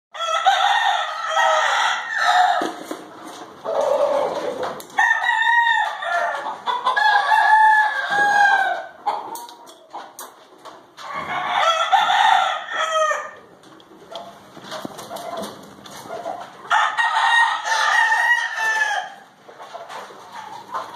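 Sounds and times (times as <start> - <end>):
roosters crowing: 0.1 - 3.0, 3.6 - 9.4, 11.0 - 13.5, 16.6 - 19.4
rooster clucking: 0.2 - 10.4, 11.0 - 20.9.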